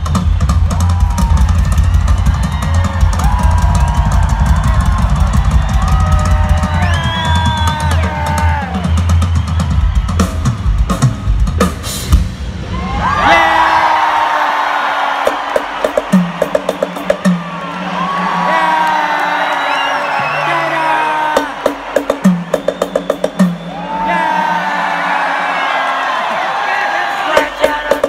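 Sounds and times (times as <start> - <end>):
rock drum kit: 0.0 - 12.7, 15.1 - 17.9, 21.2 - 23.9, 27.3 - 28.0.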